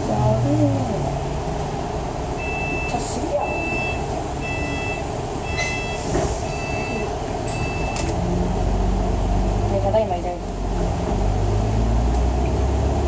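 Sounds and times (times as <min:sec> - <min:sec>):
bus rumble: 0:00.0 - 0:13.0
electronic warning beeps: 0:02.4 - 0:08.1.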